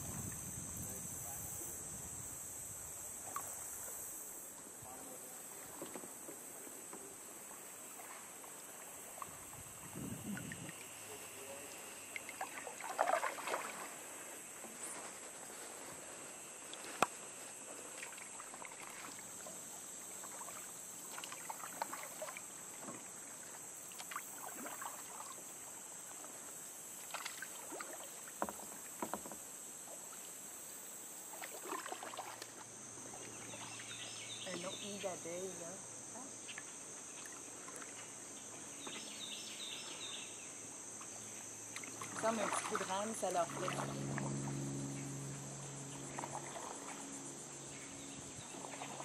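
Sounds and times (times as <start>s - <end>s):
high insect buzz: 0.0s - 49.0s
paddle dipping through water: 3.1s - 35.4s, 36.4s - 40.2s, 40.9s - 49.0s
water splashes and drips: 12.1s - 14.2s, 16.7s - 26.3s, 26.9s - 29.4s, 31.3s - 33.4s, 36.5s - 38.2s, 41.7s - 44.4s.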